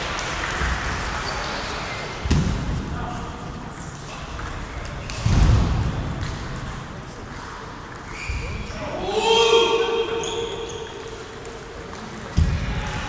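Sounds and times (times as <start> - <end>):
table tennis balls clicking: 10.6 - 12.5.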